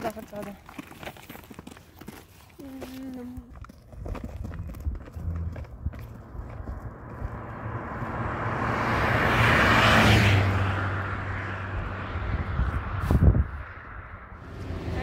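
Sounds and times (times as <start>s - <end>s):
vehicle passing by: 4.5s - 15.0s.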